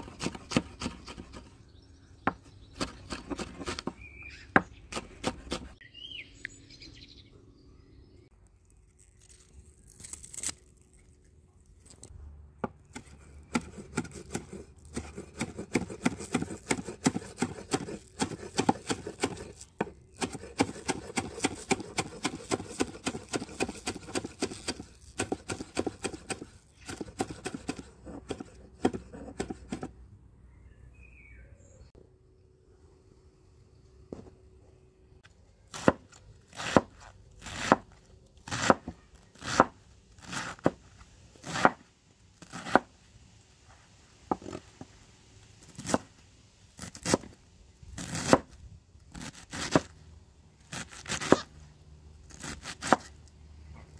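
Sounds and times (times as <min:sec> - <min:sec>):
bird chirping: 0:03.8 - 0:05.0, 0:05.8 - 0:08.8, 0:30.4 - 0:32.0
knife chopping on cutting board: 0:13.0 - 0:29.9.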